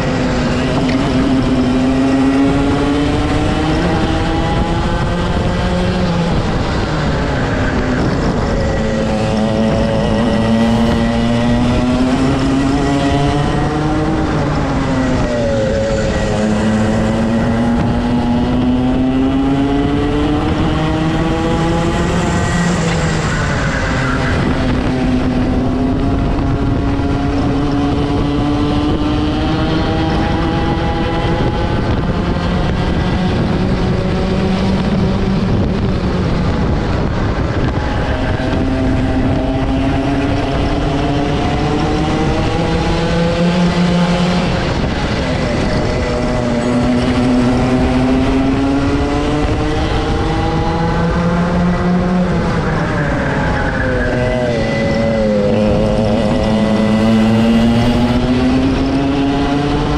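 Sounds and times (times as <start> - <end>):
kart engine revving: 0.0 - 59.9
wind noise: 0.0 - 59.9.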